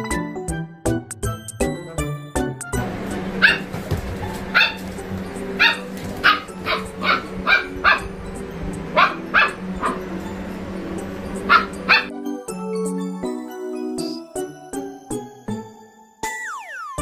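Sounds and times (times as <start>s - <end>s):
background music: 0.0s - 17.0s
dog barking: 3.4s - 5.0s, 5.6s - 8.2s, 8.9s - 10.2s, 11.4s - 12.1s.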